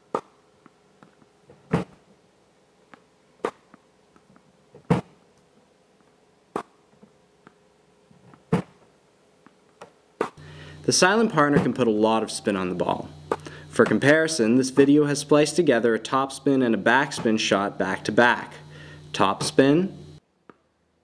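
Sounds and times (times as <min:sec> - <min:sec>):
racket hitting tennis ball: 0:03.4 - 0:03.8
ball machine firing tennis balls: 0:13.3 - 0:15.1.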